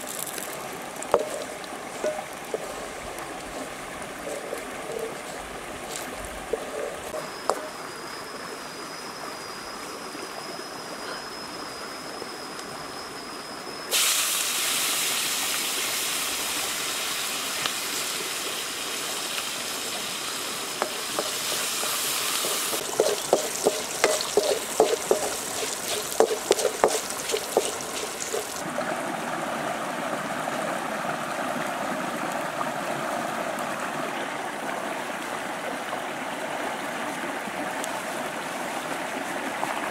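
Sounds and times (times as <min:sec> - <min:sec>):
food sizzling in a wok: 0:00.0 - 0:03.0, 0:04.2 - 0:05.3, 0:05.9 - 0:07.9, 0:13.9 - 0:28.6
stream flowing over rocks: 0:00.0 - 0:08.6, 0:15.2 - 0:39.9.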